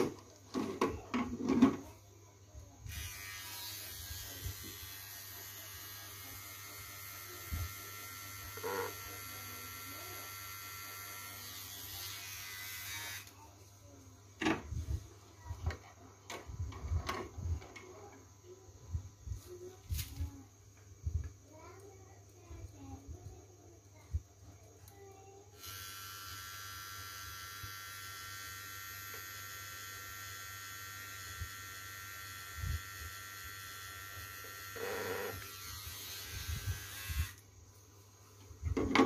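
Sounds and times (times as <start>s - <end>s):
electric hair trimmer running: 2.9s - 13.4s, 25.6s - 37.4s.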